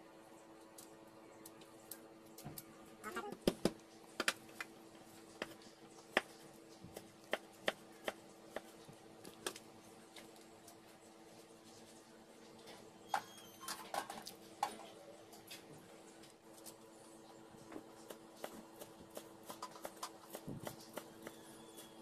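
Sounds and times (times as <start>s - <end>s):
steady low hum: 0.0s - 13.2s.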